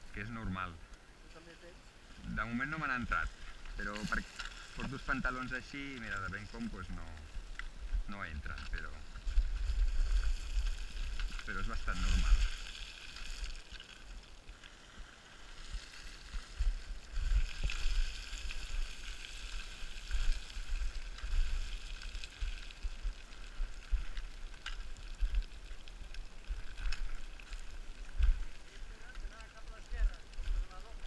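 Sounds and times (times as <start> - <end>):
footsteps crunching on scree: 1.4 - 31.0
small stones rattling: 2.4 - 14.8.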